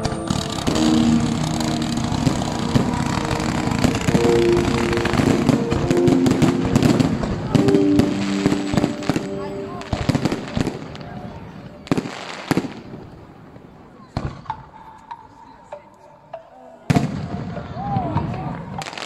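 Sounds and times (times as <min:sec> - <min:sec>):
background music: 0:00.0 - 0:12.8
fireworks crackling and banging: 0:00.0 - 0:14.6, 0:18.8 - 0:19.0.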